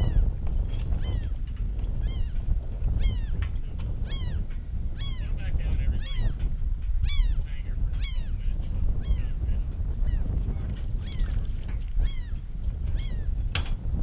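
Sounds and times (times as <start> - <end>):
steady low rumble: 0.0 - 14.0
gull calling: 4.0 - 6.4, 7.0 - 8.4, 11.0 - 11.4, 12.0 - 13.3.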